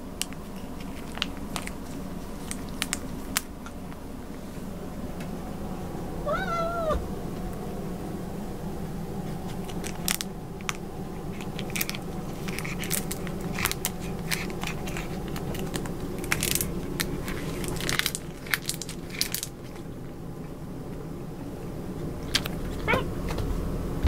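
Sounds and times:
steady low hum: 0.0s - 24.0s
sachet crinkling and crackling: 0.1s - 4.0s, 9.5s - 20.0s.

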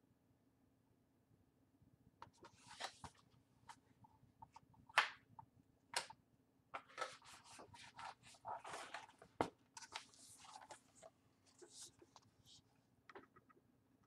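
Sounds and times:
book pages rustling: 2.3s - 3.8s, 6.8s - 12.7s.

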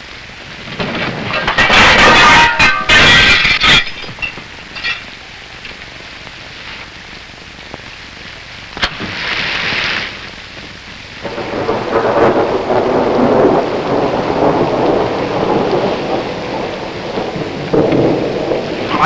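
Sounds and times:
rain: 0.0s - 19.0s
thunder: 0.6s - 3.3s, 11.2s - 19.0s.

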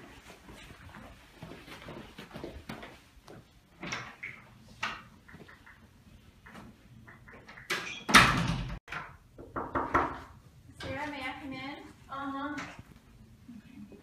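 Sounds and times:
knocks on door: 9.4s - 10.3s.

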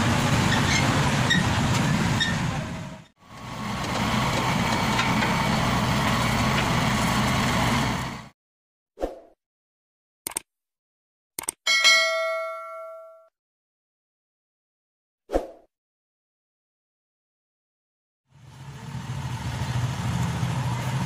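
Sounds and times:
diesel engine running: 0.0s - 8.3s, 18.3s - 21.0s
roadside traffic noise: 0.0s - 8.4s, 18.3s - 21.0s.

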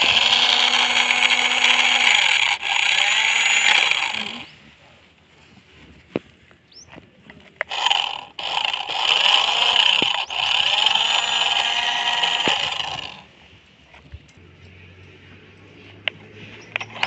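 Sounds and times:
toy car electric motor whirring: 0.0s - 4.5s, 7.7s - 13.3s.

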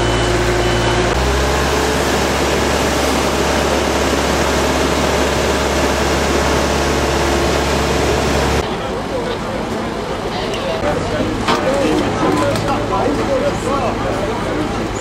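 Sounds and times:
reversing alarm beeping: 0.0s - 8.6s
truck engine running: 0.0s - 15.0s.

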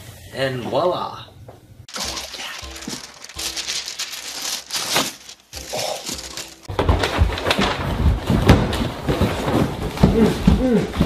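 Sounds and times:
tissue paper rustling: 1.9s - 9.7s
heavy thumps and bumps: 6.7s - 11.0s.

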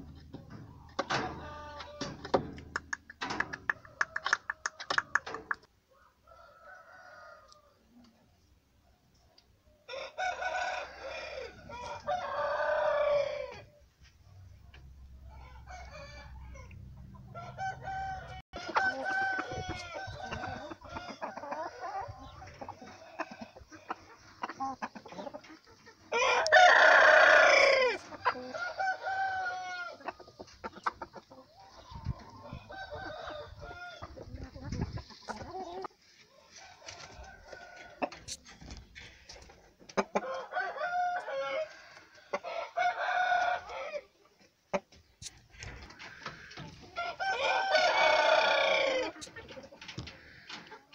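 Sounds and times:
roosters crowing: 0.0s - 2.6s, 9.8s - 13.7s, 15.2s - 24.1s, 26.1s - 30.2s, 31.6s - 34.2s, 36.4s - 38.4s, 40.0s - 44.2s, 45.5s - 49.3s
chickens clucking: 0.0s - 50.9s.

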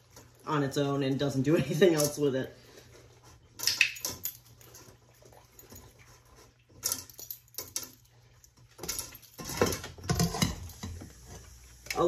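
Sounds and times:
colander clattering against steel bowl: 8.8s - 11.0s.

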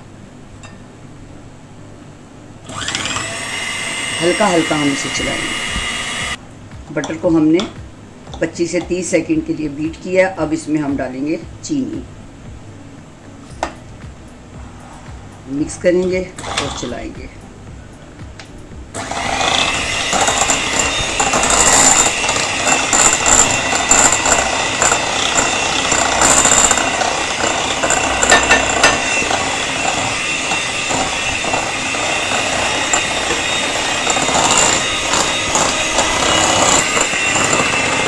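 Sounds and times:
electric hand mixer running: 2.7s - 6.4s, 19.0s - 38.0s.

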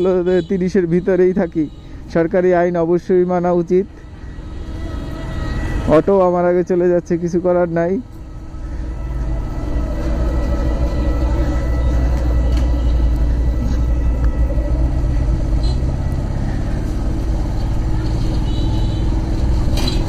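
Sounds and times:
motorcycle engine rumble: 0.0s - 20.0s.

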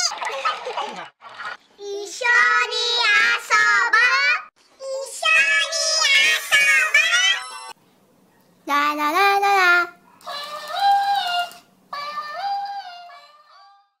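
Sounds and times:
toys singing in squeaky voices: 1.8s - 7.8s, 8.7s - 13.8s.

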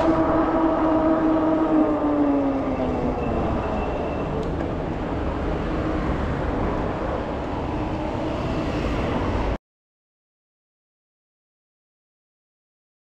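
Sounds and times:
low vehicle rumble: 0.0s - 9.6s.

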